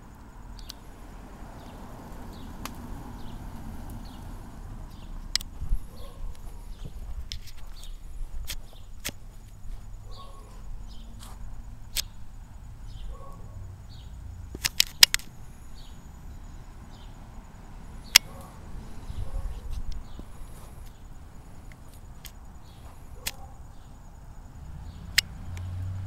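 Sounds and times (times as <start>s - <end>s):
sharp clicks: 0.5s - 0.8s, 2.6s - 2.9s, 4.9s - 5.6s, 7.2s - 9.6s, 11.9s - 12.2s, 14.5s - 15.4s, 18.0s - 18.6s, 23.2s - 23.5s, 25.1s - 25.8s
wind on microphone: 5.4s - 9.7s, 18.4s - 20.8s.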